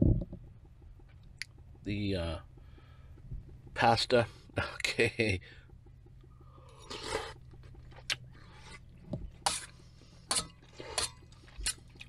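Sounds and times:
metal spoon scraping a pot: 9.4s - 11.8s.

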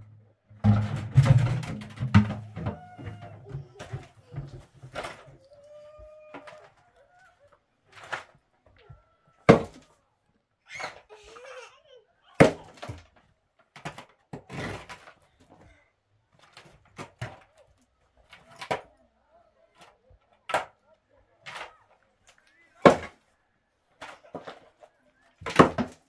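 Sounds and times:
hard objects knocking: 0.6s - 6.8s, 8.0s - 9.9s, 25.4s - 26.0s.

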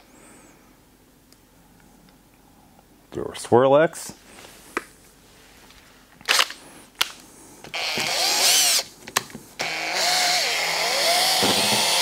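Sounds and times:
drill motor whine: 7.7s - 8.9s, 9.6s - 12.0s.

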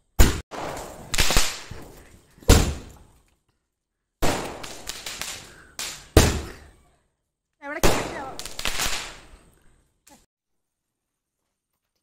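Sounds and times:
fireworks bangs: 0.2s - 3.0s, 4.2s - 6.7s, 7.8s - 9.4s.

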